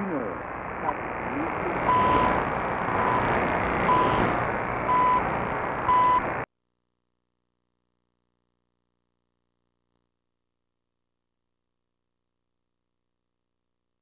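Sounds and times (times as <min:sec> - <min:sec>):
radio static hiss: 0:00.0 - 0:06.5
time signal beeps: 0:01.8 - 0:04.3, 0:04.9 - 0:05.3, 0:05.9 - 0:06.3.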